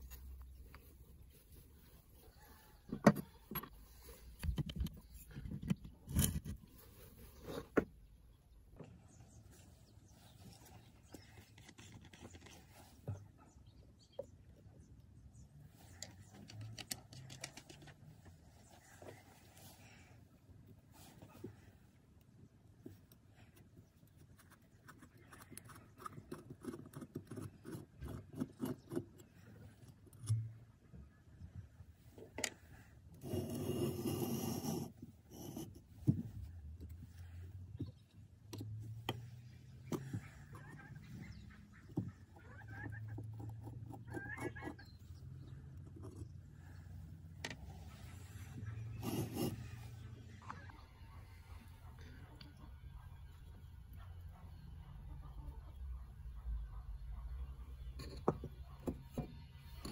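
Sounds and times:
screw creaking and scraping: 2.8s - 7.9s, 32.4s - 37.1s, 48.5s - 49.9s.

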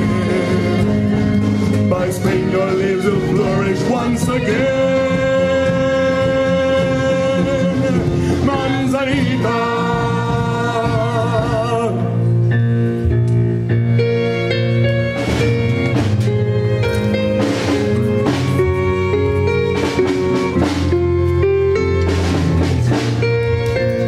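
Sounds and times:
choir singing: 0.0s - 11.8s
violins: 0.0s - 12.1s, 14.0s - 24.0s
acoustic guitar: 0.0s - 24.0s
keyboard: 0.0s - 24.0s.

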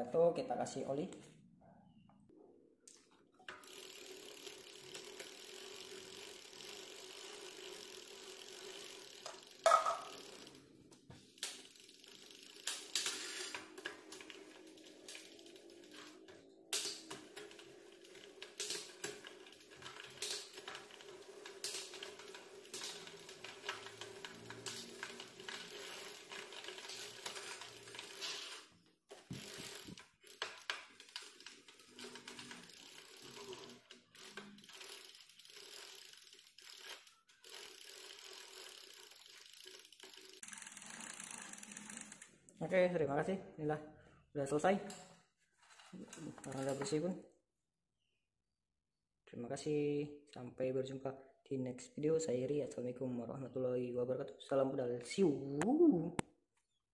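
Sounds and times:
freewheel ratchet clicking: 3.4s - 10.7s, 11.4s - 42.3s
bicycle chain whirring: 3.4s - 42.4s, 46.2s - 46.8s.

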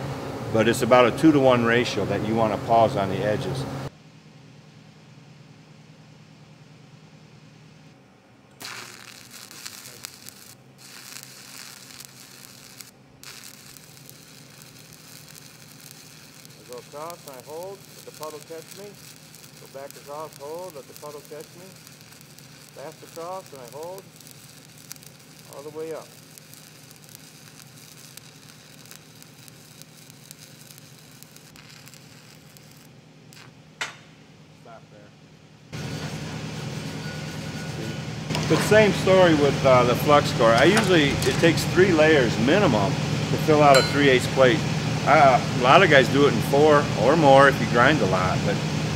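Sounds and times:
arc welding crackling and popping: 8.5s - 34.0s, 38.3s - 48.6s.

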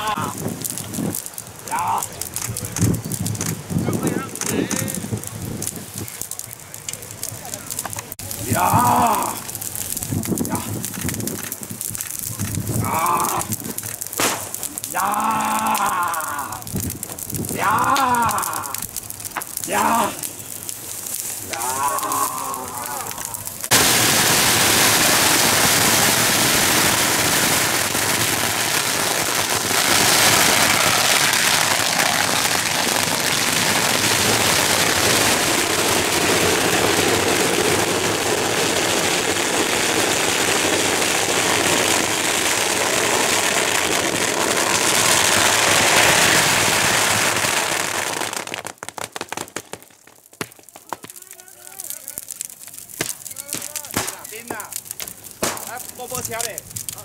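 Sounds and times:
firecrackers crackling: 0.0s - 57.0s
people shouting: 8.4s - 9.5s, 12.8s - 13.5s, 14.9s - 16.7s, 17.6s - 18.9s, 19.7s - 20.2s, 21.5s - 23.5s.

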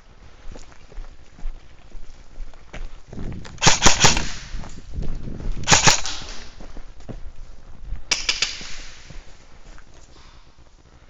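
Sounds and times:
airsoft guns firing: 3.6s - 4.6s, 5.6s - 6.6s, 8.1s - 9.2s.

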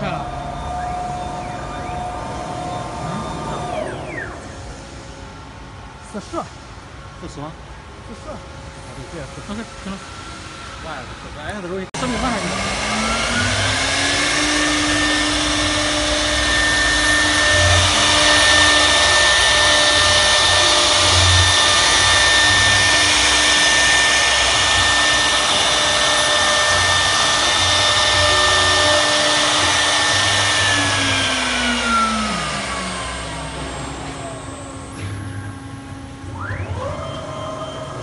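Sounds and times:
router spindle whine: 0.0s - 6.0s, 8.8s - 38.0s
rushing cutting noise: 0.0s - 6.0s, 12.0s - 38.0s.

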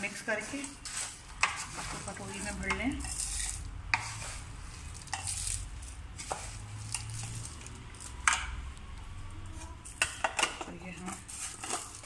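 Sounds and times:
dry spices rattling: 0.3s - 8.3s.

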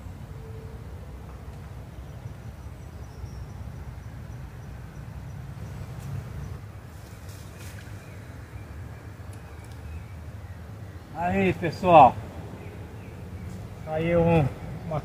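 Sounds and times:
light clicks: 9.3s - 9.9s.

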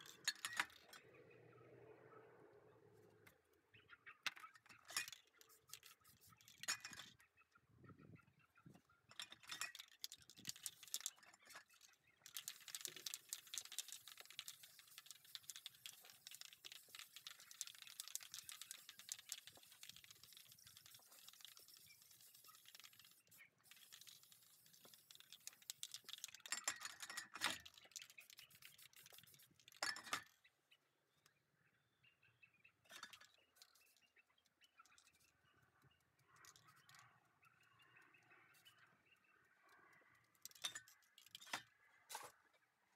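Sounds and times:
cans clicking and knocking: 9.3s - 30.2s
spray-paint can hissing: 12.3s - 26.4s, 28.1s - 29.5s.

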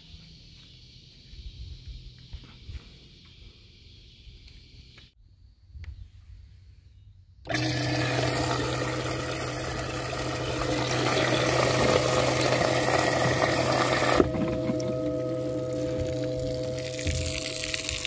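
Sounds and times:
pump motor hum: 7.5s - 18.0s
water splashing and bubbling: 8.2s - 18.0s.

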